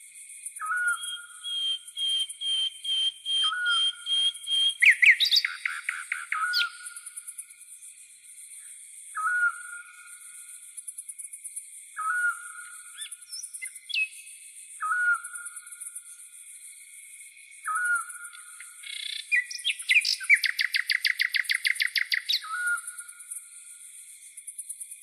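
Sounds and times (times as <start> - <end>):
insect trill: 0.0 - 25.0
bird whistling: 0.6 - 6.9, 9.2 - 9.8, 12.0 - 14.1, 17.7 - 18.1, 18.9 - 22.8
bird chirps: 0.6 - 7.2, 9.2 - 10.3, 12.0 - 16.0, 17.6 - 23.4.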